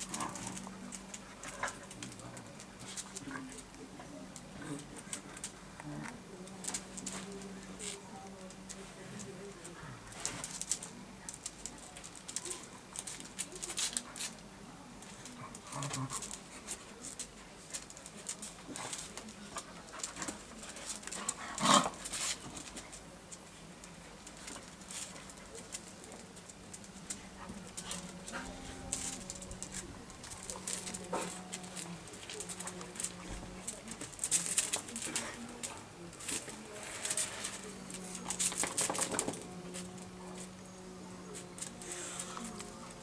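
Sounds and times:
dogs scuffling: 6.2 - 43.0
claws ticking on paving: 15.0 - 40.6.

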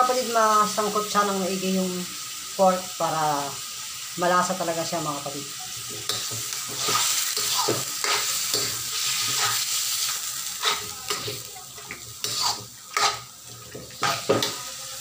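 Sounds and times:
meat sizzling in hot oil: 0.0 - 15.0
metal spatula scraping a wok: 5.8 - 15.0.

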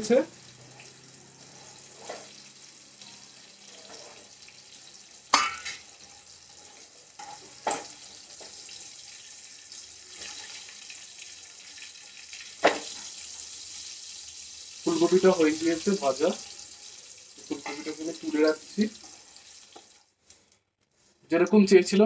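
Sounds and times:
cauliflower sizzling in hot oil: 0.0 - 20.4.

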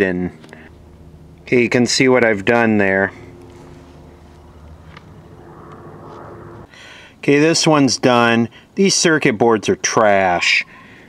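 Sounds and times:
low background rumble: 0.0 - 8.8.

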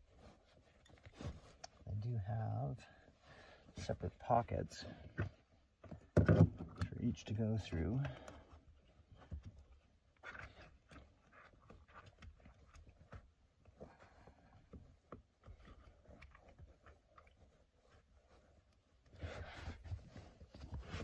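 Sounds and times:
seat belt webbing rustling: 0.0 - 2.3, 8.4 - 21.0.

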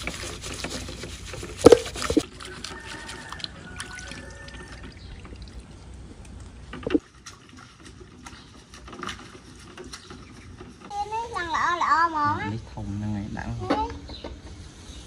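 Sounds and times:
water sloshing in metal basin: 0.0 - 10.9
scrubbing eggs with straw: 0.0 - 12.1.

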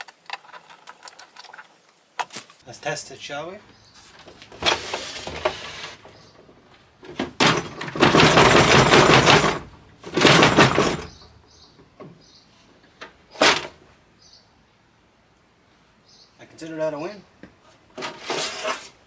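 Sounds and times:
saws clattering: 4.1 - 11.3.

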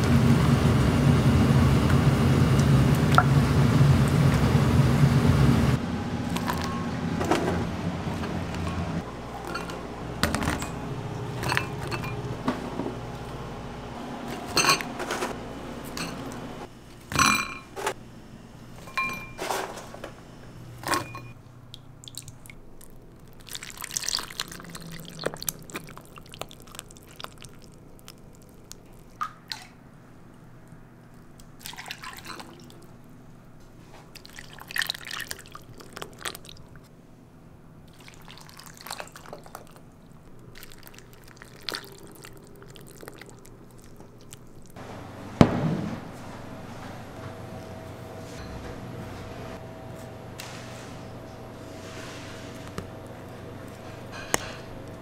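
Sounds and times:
ladle clinking on bowls: 9.4 - 12.4, 14.5 - 15.2, 15.8 - 16.3, 17.1 - 17.8, 18.8 - 19.5, 20.8 - 21.4
liquid pouring and dripping: 21.7 - 29.8, 31.4 - 32.9, 34.2 - 36.8, 37.9 - 44.8.

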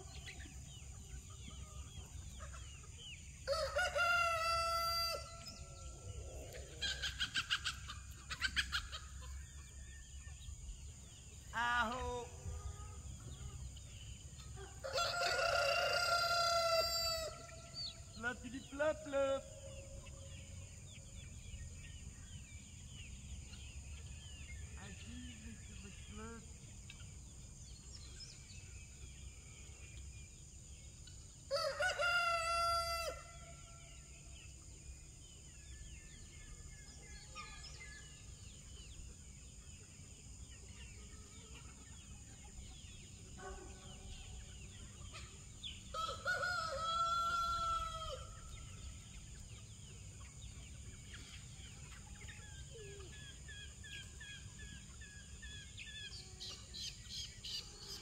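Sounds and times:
soft clucking and chirps: 0.0 - 58.0
rooster crowing: 3.5 - 5.4, 14.6 - 17.6, 31.5 - 33.4, 45.9 - 48.3.

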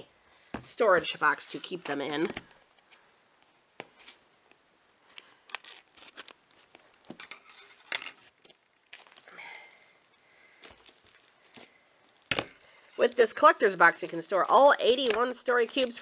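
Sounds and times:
plastic wrapping tearing and crinkling: 5.0 - 16.0.

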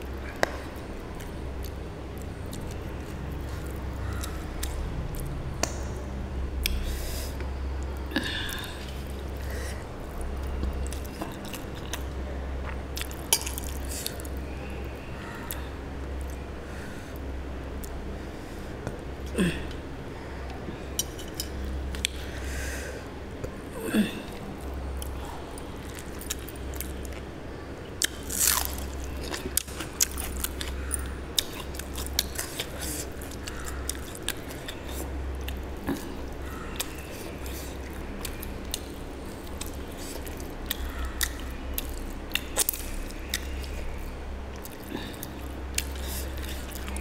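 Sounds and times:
steady low hum: 0.0 - 47.0
chewing and biting food: 28.0 - 47.0.

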